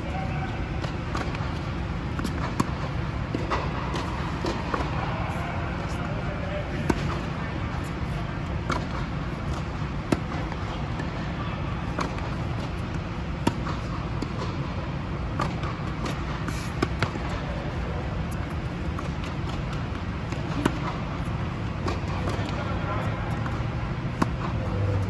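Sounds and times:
steady hum: 0:00.0 - 0:25.0
balls bouncing on hard court: 0:00.1 - 0:11.3, 0:11.9 - 0:25.0
tennis balls struck by rackets: 0:00.8 - 0:11.3, 0:11.9 - 0:25.0.

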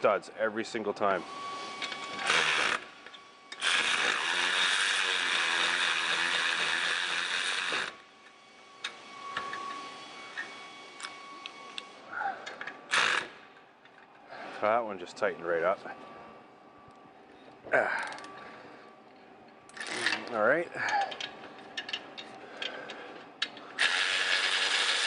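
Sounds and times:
electric ratchet running: 0:01.8 - 0:08.0, 0:12.6 - 0:13.4, 0:19.7 - 0:20.3, 0:23.8 - 0:25.0.

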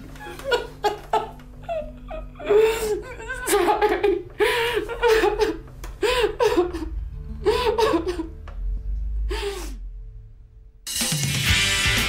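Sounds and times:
woman sobbing: 0:00.2 - 0:08.4.

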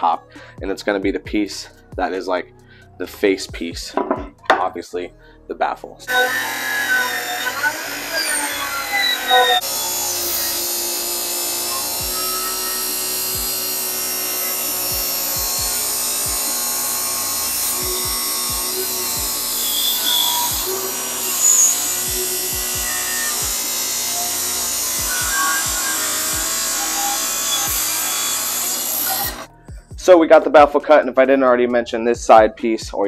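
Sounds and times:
background music with beat: 0:00.0 - 0:05.1, 0:11.5 - 0:33.0
table saw cutting plywood: 0:06.1 - 0:29.5.

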